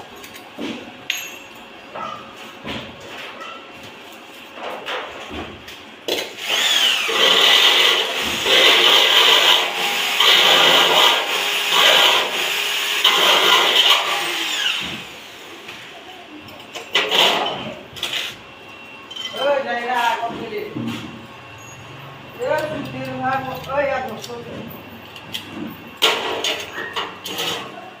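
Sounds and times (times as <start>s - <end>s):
electric drill boring into metal: 6.4s - 15.3s.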